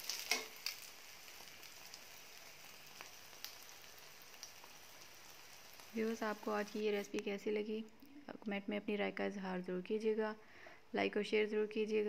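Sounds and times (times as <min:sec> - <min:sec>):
faint sizzle of frying: 0:00.0 - 0:07.8
tongs clicking against pan: 0:00.1 - 0:00.9.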